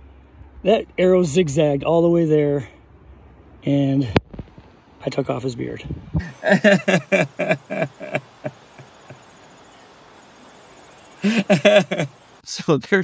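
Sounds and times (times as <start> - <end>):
man laughing hard: 6.2 - 9.2, 11.2 - 12.2
faint high whine: 6.2 - 13.0.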